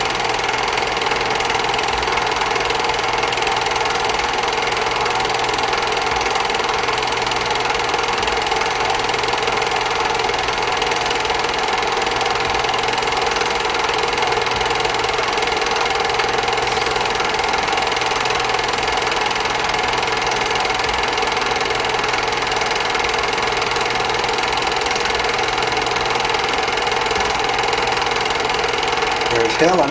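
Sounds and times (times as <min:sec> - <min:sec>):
film projector clattering: 0:00.0 - 0:29.9
projector hum: 0:00.0 - 0:29.9.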